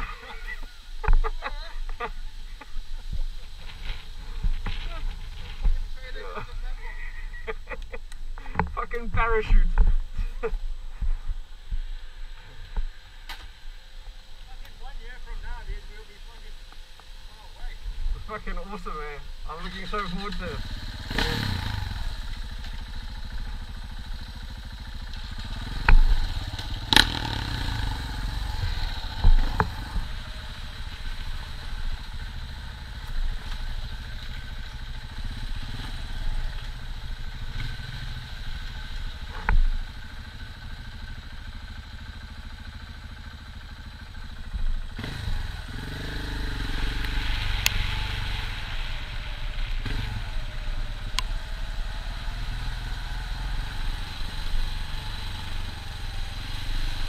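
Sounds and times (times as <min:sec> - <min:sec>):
motorcycle engine running: 0:19.2 - 0:57.0.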